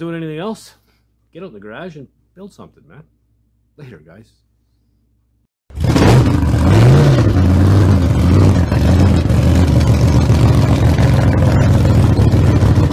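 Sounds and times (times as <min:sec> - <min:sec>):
car engine idling: 0:05.8 - 0:12.9.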